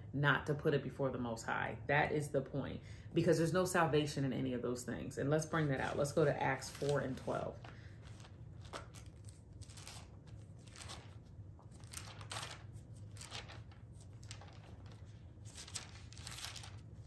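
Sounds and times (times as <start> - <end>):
low steady hum: 0.0 - 17.0
thin paper pages rustling: 5.7 - 17.0.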